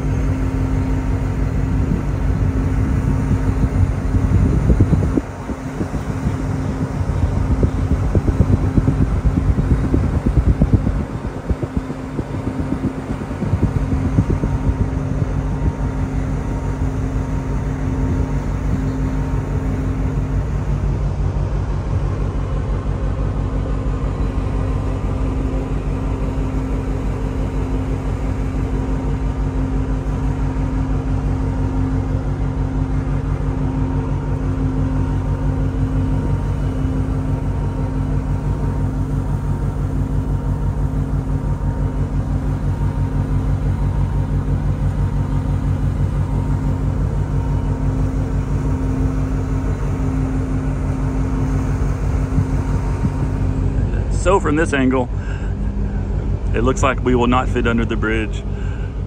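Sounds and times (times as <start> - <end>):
ship machinery drone: 0.0 - 59.0.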